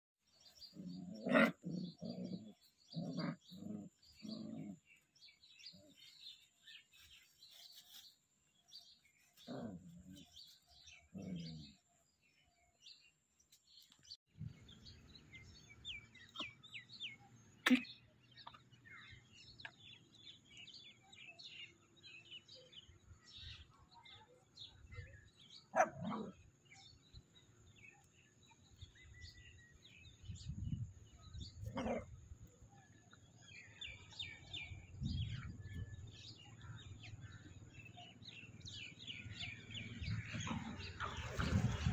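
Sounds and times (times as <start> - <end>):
small birds chirping: 0.2 - 41.9
puppies growling and yapping: 0.6 - 5.0, 39.7 - 41.9.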